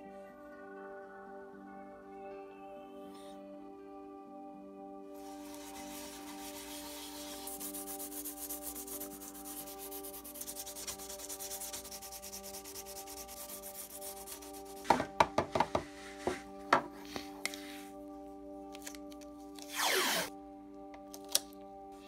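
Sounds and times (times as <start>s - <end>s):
sandpaper rubbing on board: 5.2s - 14.9s.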